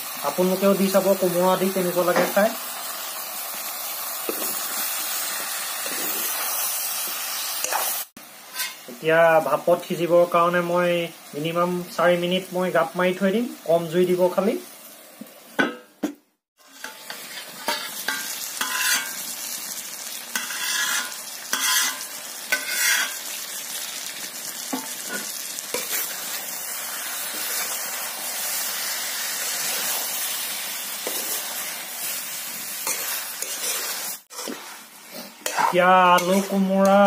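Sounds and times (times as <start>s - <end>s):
curry sizzling in a pan: 0.0s - 37.0s
scraping stirs: 32.8s - 37.0s.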